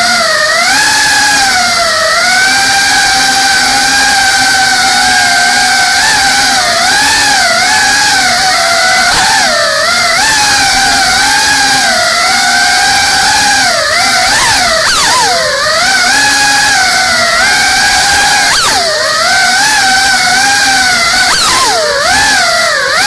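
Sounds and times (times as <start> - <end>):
drone motors whining: 0.0 - 23.0.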